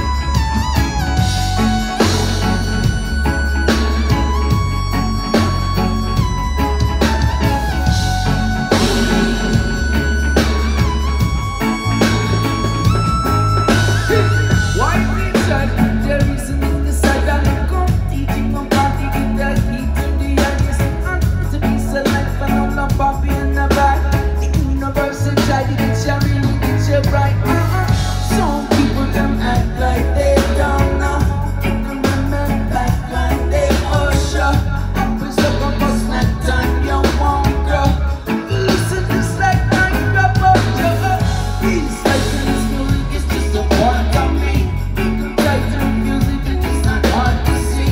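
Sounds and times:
heavy bass line: 0.0s - 47.9s
live reggae rock band: 0.0s - 47.9s.

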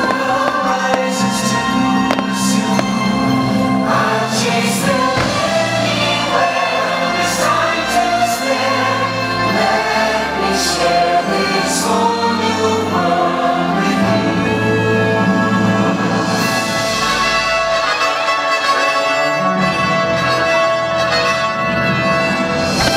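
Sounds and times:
firework bangs: 0.0s - 3.7s, 4.8s - 7.0s
choir singing: 0.0s - 20.6s
orchestra playing: 0.0s - 22.9s.

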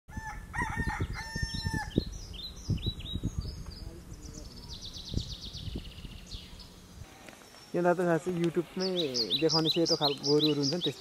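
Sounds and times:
rooster crowing: 0.1s - 2.0s
small birds chirping: 0.9s - 11.0s
fast high bird trill: 8.6s - 11.0s.

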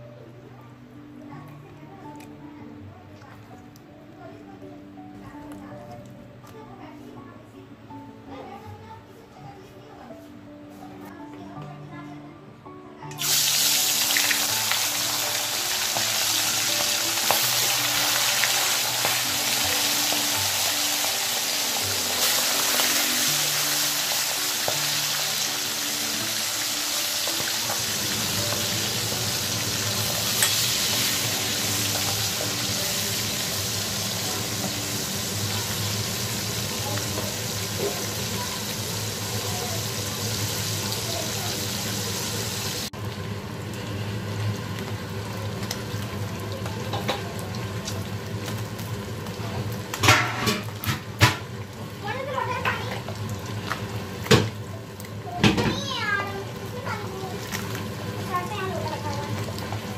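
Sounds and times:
fish deep-frying in oil: 13.2s - 59.9s.

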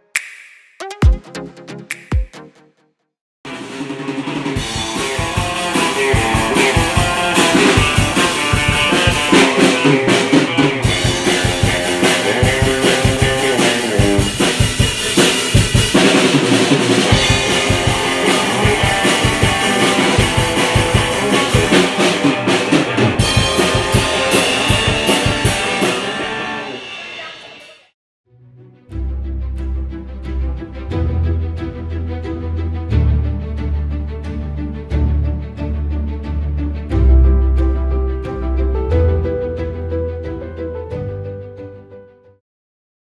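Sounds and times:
electric guitar chords: 3.5s - 14.7s, 17.0s - 27.0s
rock drum beat: 3.5s - 27.8s.

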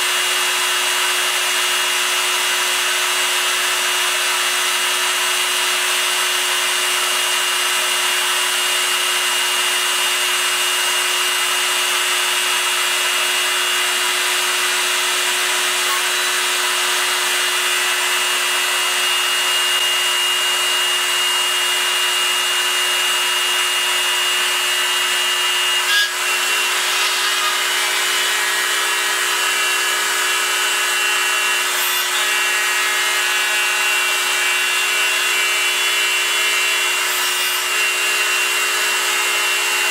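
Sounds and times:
milling machine spindle whine: 12.1s - 39.9s
end mill scraping metal: 25.8s - 28.8s.

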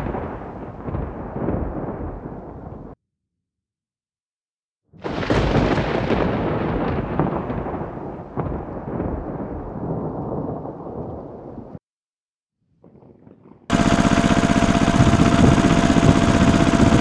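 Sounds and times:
thunder clap rumbling: 0.0s - 3.0s, 5.0s - 11.8s, 12.8s - 17.0s
rain: 5.1s - 11.8s.

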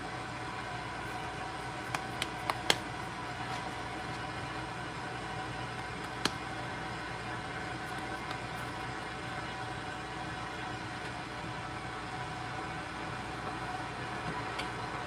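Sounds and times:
hands slapping dough: 1.8s - 3.0s, 5.7s - 6.5s, 7.9s - 8.6s.

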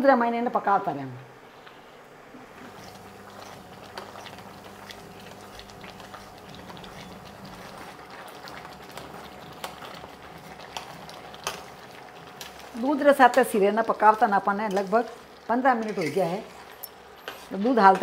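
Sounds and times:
milk bubbling in a pot: 2.4s - 15.8s.

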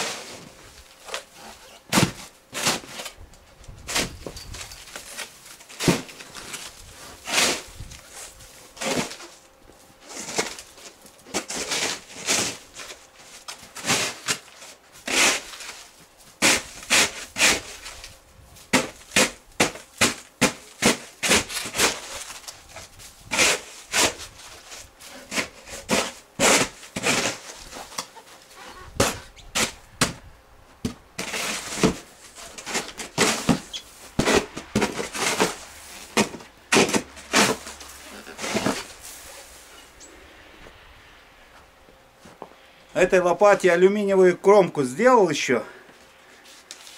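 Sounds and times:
snow shovel scraping pavement: 5.1s - 9.4s, 10.0s - 10.7s, 11.3s - 13.0s, 13.7s - 17.9s, 18.8s - 28.0s, 31.2s - 39.8s.

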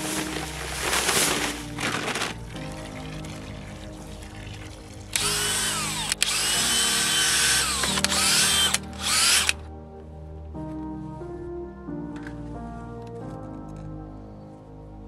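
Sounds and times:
paddle mixer in wet stucco: 0.0s - 9.6s
background music: 0.0s - 15.0s
cordless drill motor whine: 5.2s - 9.6s.

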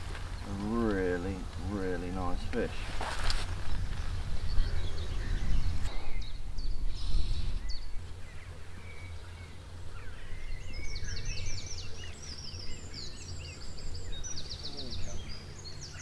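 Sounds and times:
wind buffeting microphone: 0.0s - 8.3s
small birds chirping: 0.0s - 16.0s.

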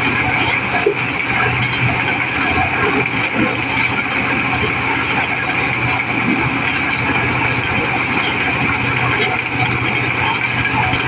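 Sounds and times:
corn sheller running: 0.0s - 11.0s.

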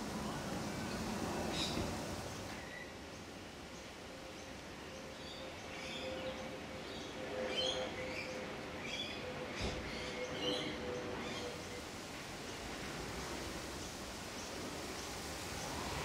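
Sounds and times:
small birds chirping: 0.0s - 6.4s.

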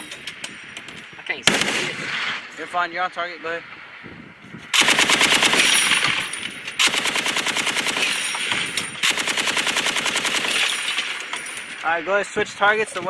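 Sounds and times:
heavy machine gun bursts: 4.8s - 11.8s.

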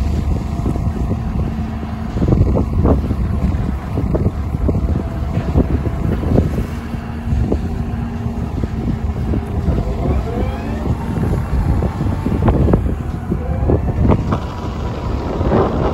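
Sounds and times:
diesel engine rumbling: 0.0s - 15.9s
wind on microphone: 0.0s - 15.9s
faint rising tone: 9.2s - 15.0s.

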